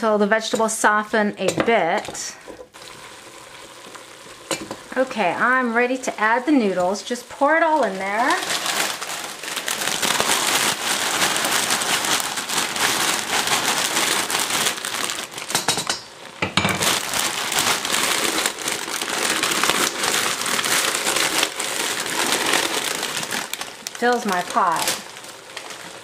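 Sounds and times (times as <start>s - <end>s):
stir-fry sizzling and crackling: 0.5s - 26.0s.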